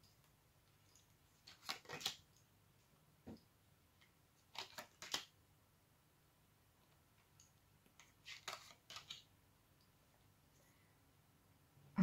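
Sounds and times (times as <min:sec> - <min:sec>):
cards snapping and sliding: 0:01.4 - 0:02.2, 0:04.5 - 0:05.3, 0:08.0 - 0:09.3.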